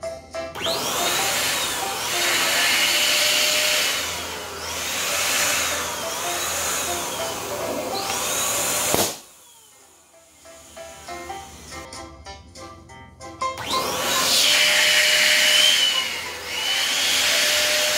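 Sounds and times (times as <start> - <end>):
quiet background music: 0.0 - 17.9
electric balloon pump running: 0.6 - 11.9, 13.6 - 17.9
balloon bursting: 8.0 - 9.3.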